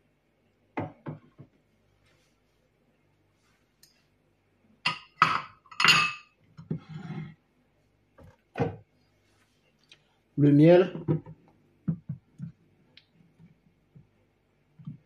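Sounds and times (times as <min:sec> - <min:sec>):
kitchenware clinking: 0:04.8 - 0:06.4.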